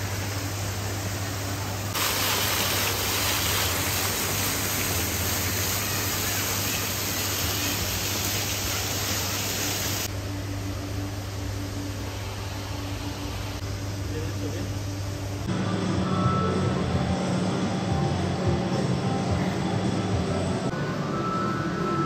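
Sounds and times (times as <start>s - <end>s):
running water hissing: 0.0s - 10.1s
steady low hum: 9.9s - 22.0s.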